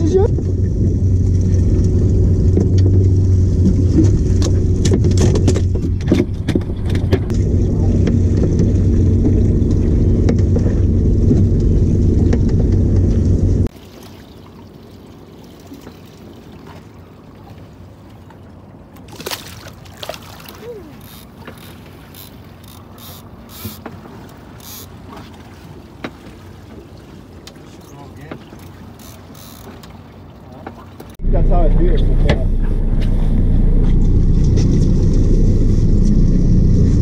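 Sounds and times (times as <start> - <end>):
outboard motor running: 0.0 - 37.0.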